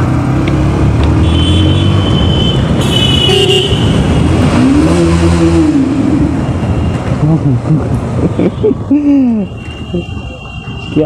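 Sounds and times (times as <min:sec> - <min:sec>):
motorcycle engine revving: 0:00.0 - 0:07.9
motorcycle horn toots: 0:01.2 - 0:04.0.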